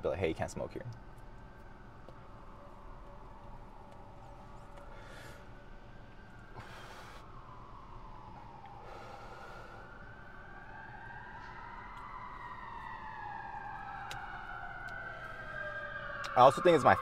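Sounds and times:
emergency siren wailing: 0:00.2 - 0:17.0
puffs of breath: 0:04.8 - 0:05.7, 0:06.5 - 0:07.6, 0:08.7 - 0:10.3.

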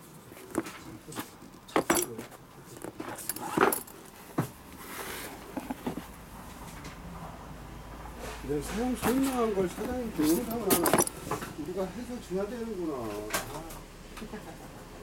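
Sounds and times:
light clinks and knocks: 0:00.5 - 0:04.6, 0:08.8 - 0:11.5
fabric rustling: 0:08.6 - 0:11.5.

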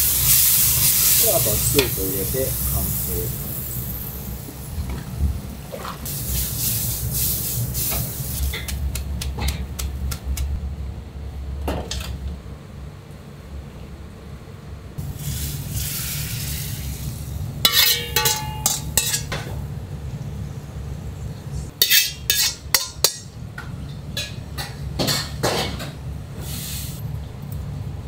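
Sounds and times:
hiss: 0:00.0 - 0:04.6, 0:06.0 - 0:08.6, 0:15.0 - 0:17.3, 0:26.4 - 0:27.0
low hum of kitchen equipment: 0:00.0 - 0:28.0
bowls and metal utensils clinking: 0:17.7 - 0:19.5.

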